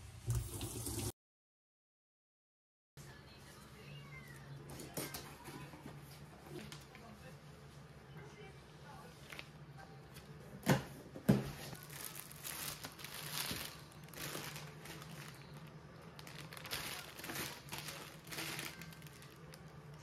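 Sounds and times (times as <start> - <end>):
plastic packaging crinkling: 11.7 - 20.0.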